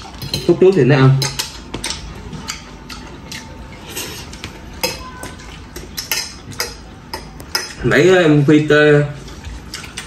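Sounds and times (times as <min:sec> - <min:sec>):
forks clinking on plates: 0:00.0 - 0:02.7.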